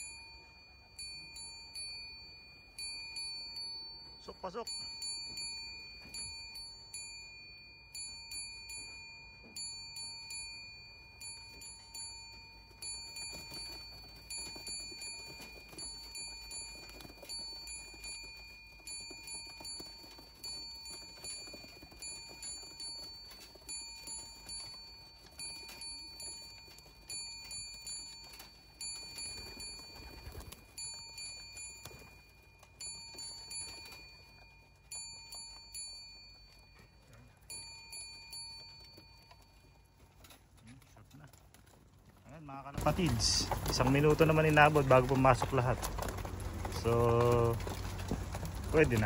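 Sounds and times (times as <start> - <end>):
bell ringing: 0.0 - 40.5, 42.4 - 49.0
pigeon wings flapping: 11.4 - 35.6, 38.6 - 49.0.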